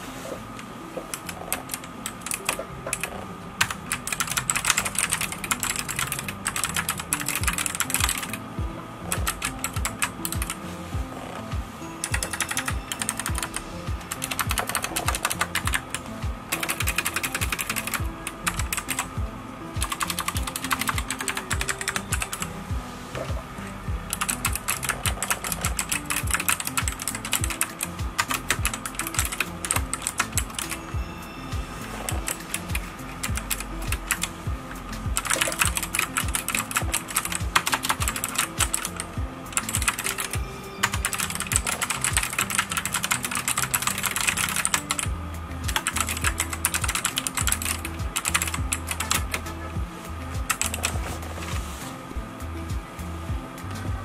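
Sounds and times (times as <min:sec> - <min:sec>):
background music with steady beat: 0:00.0 - 0:54.0
mechanical keyboard typing: 0:01.1 - 0:08.4, 0:09.1 - 0:10.6, 0:12.0 - 0:19.1, 0:19.8 - 0:22.5, 0:24.1 - 0:30.8, 0:31.9 - 0:34.3, 0:35.1 - 0:45.1, 0:45.7 - 0:49.5, 0:50.5 - 0:51.1.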